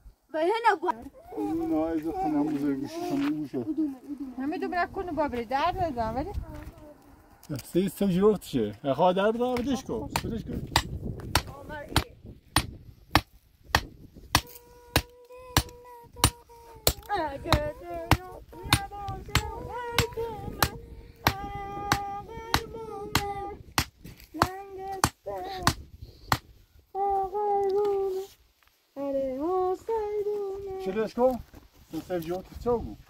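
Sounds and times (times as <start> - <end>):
person singing long notes: 14.4 - 23.7, 26.9 - 30.8.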